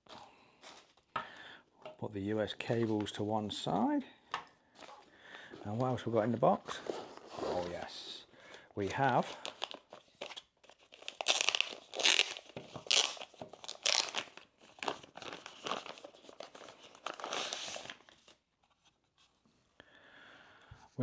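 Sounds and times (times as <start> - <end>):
plastic packaging crinkling: 8.8 - 18.4.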